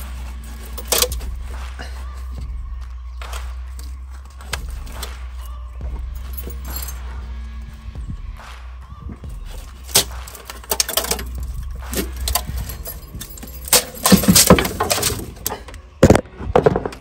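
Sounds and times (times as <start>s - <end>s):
metal clunks and scrapes: 0.0s - 1.6s, 9.6s - 17.0s.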